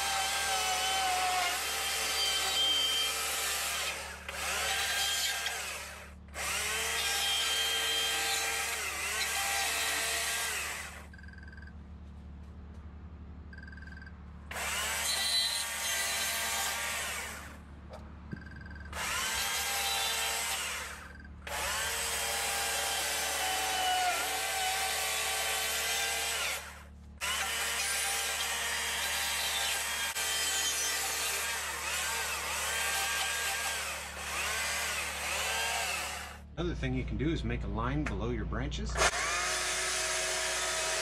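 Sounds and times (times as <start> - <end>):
chainsaw cutting into wood: 0.0 - 11.1, 14.5 - 17.6, 18.9 - 36.4, 39.0 - 41.0.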